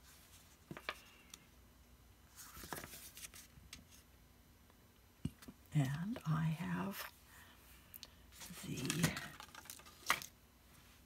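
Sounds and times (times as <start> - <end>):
paper rustling: 2.3 - 4.0, 8.4 - 10.3.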